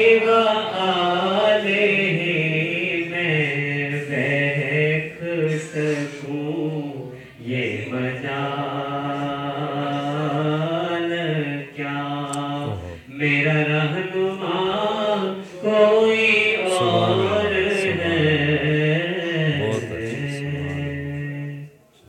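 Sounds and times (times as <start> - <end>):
man chanting melismatic notes: 12.4 - 13.1, 16.6 - 18.8, 19.4 - 20.9.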